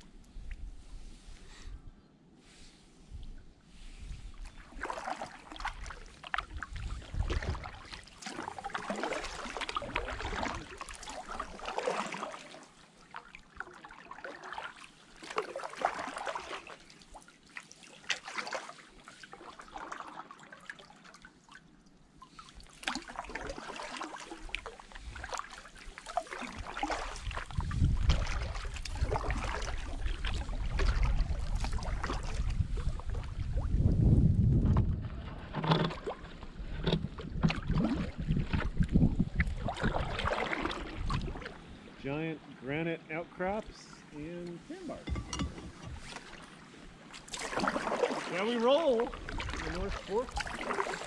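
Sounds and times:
paddle splashing and dripping: 0:04.3 - 0:42.6, 0:43.8 - 0:51.0
wind buffeting microphone: 0:06.4 - 0:07.8, 0:27.2 - 0:35.5, 0:36.5 - 0:41.4.

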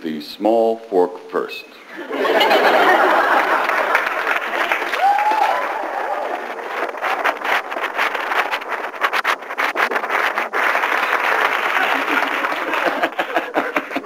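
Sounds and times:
audience laughing: 0:01.9 - 0:04.9, 0:11.6 - 0:14.0
audience applauding: 0:02.4 - 0:07.6, 0:10.6 - 0:14.0.

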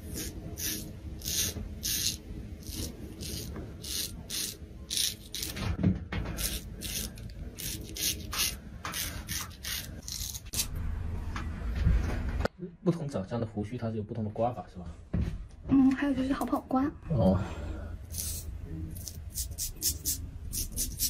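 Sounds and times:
razor scraping stubble: 0:00.0 - 0:05.6, 0:06.4 - 0:10.7, 0:18.1 - 0:21.0.

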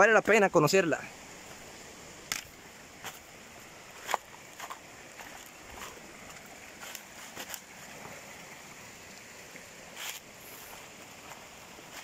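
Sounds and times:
creek water rushing: 0:00.0 - 0:12.0
footsteps on stones and leaves: 0:02.3 - 0:08.2, 0:10.0 - 0:12.0.

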